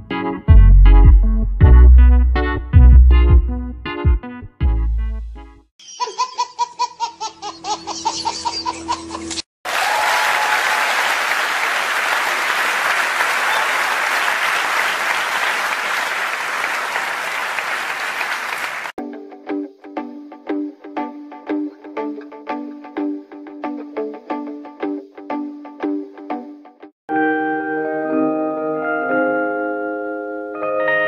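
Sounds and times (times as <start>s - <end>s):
background music: 0.0s - 5.7s, 19.0s - 31.0s
audience applauding: 9.6s - 19.0s.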